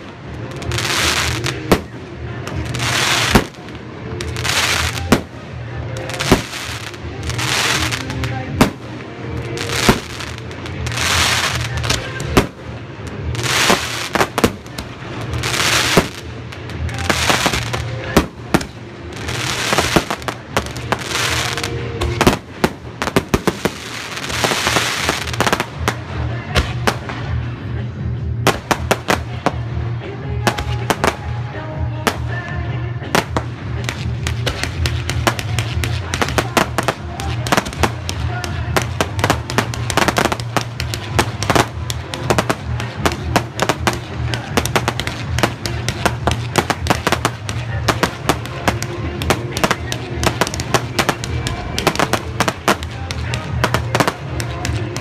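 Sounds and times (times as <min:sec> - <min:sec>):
music: 0:00.0 - 0:55.0
firework hisses: 0:09.6 - 0:25.8.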